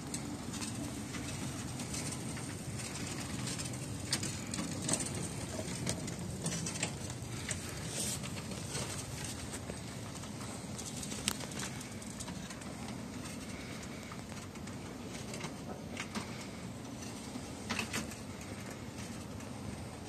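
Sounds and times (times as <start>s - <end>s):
miniature train drive hum: 0.0s - 20.0s
wheels clicking on rails: 0.0s - 20.0s.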